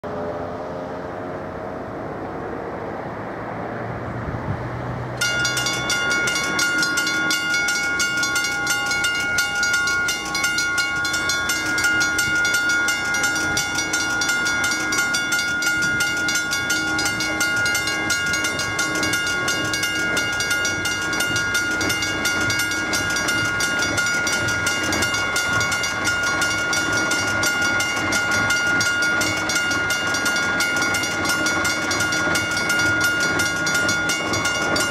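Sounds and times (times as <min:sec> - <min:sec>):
passing vehicle: 0:00.0 - 0:06.3
level-crossing warning bell: 0:05.2 - 0:34.9.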